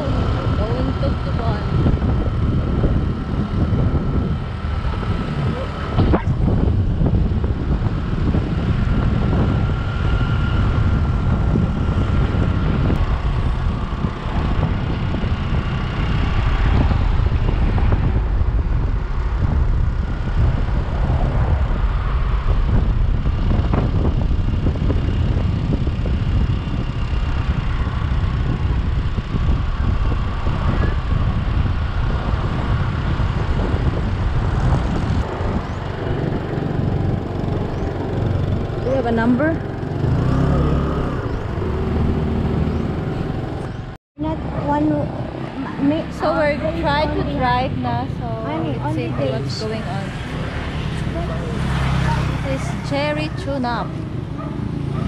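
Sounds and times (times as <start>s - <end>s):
motorbike engine running: 0.0s - 55.0s
wind rumble on microphone: 0.0s - 55.0s.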